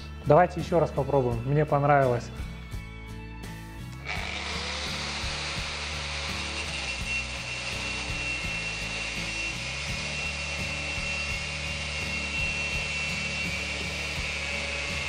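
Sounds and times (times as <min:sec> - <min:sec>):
angle grinder cutting steel: 0:04.0 - 0:15.0.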